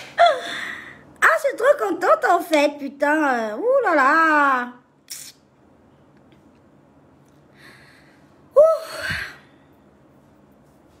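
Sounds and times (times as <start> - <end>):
woman breathing: 0.0 - 1.1, 7.5 - 9.8.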